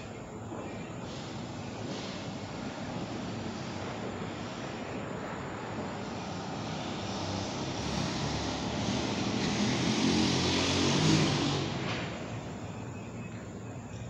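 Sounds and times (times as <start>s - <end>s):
vehicle passing by: 5.6s - 13.4s.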